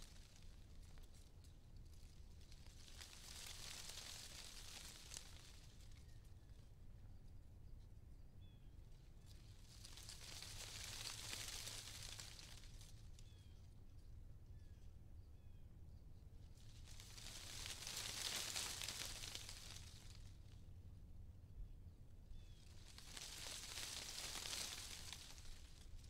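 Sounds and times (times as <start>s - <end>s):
wind rustling tree leaves: 0.0s - 6.7s, 8.9s - 13.5s, 16.4s - 20.8s, 22.2s - 26.0s
faint bird chirps: 5.8s - 9.7s, 11.0s - 17.5s, 21.6s - 25.4s.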